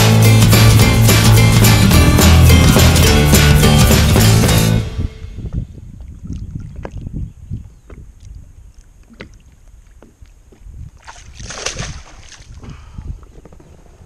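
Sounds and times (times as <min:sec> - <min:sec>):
water sloshing and splashing: 0:05.9 - 0:12.8
fish splashing away: 0:11.0 - 0:12.6.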